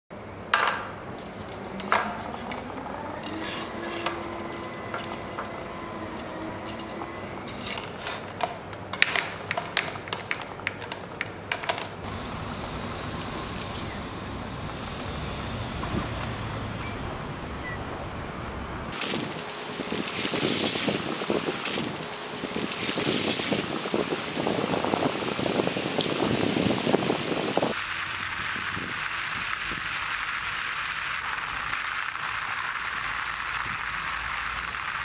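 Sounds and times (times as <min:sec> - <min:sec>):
bamboo poles clicking and knocking: 0:07.9 - 0:12.1.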